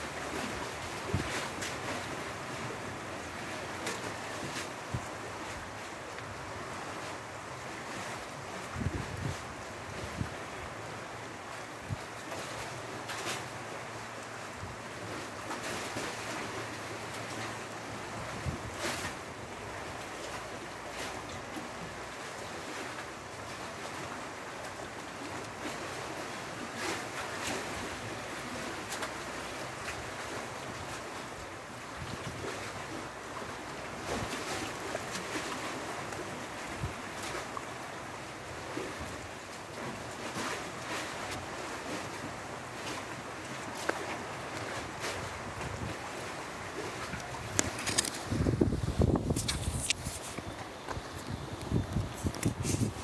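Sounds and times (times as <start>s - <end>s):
surf washing on shore: 0.0s - 53.0s.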